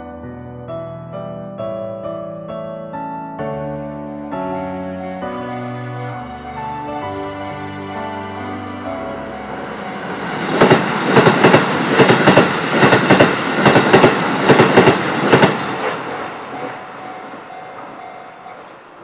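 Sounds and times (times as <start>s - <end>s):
electric train passing: 3.7s - 19.0s
train wheels clacking over rail joints: 10.5s - 18.0s.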